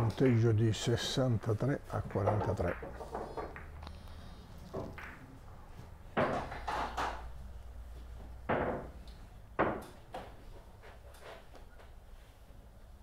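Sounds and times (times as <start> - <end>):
billiard balls knocking: 2.0 - 3.9, 4.7 - 7.4, 8.2 - 10.6.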